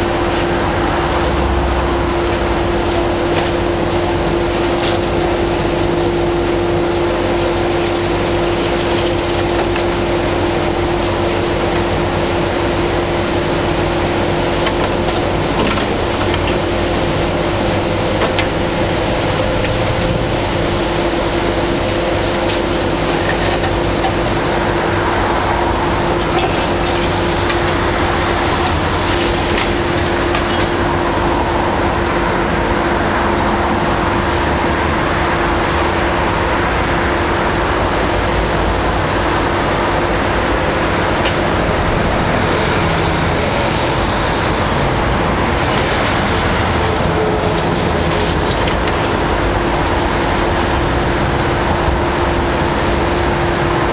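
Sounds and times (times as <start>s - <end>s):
excavator engine and hydraulics whining: 0.0s - 53.9s
concrete cracking and debris falling: 26.0s - 30.9s.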